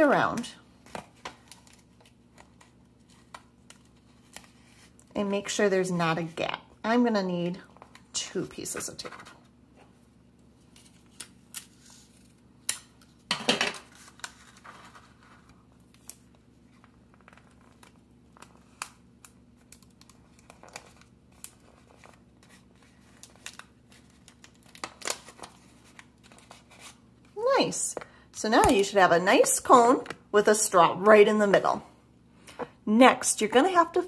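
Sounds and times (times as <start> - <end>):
paper crinkling and rustling: 13.8 - 27.0.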